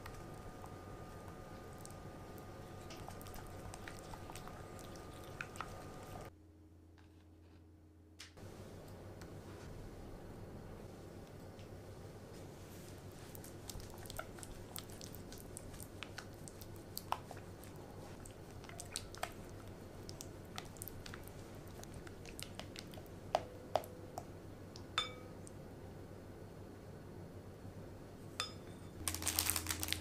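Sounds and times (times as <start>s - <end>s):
spatula stirring sticky squelches: 0.0s - 6.3s, 12.5s - 24.3s
spatula knocking glass bowl: 25.0s - 25.3s.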